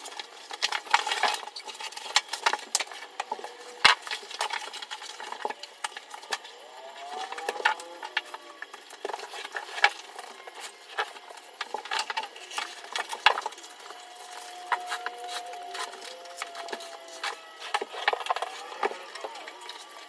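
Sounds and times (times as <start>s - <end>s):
vinyl flooring clicking and snapping: 0.0s - 6.5s.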